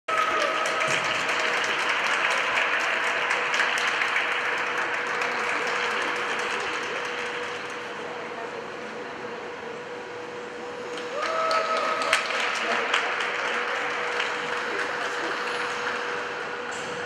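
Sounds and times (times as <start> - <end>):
audience applauding: 0.1 - 8.0, 10.9 - 16.3.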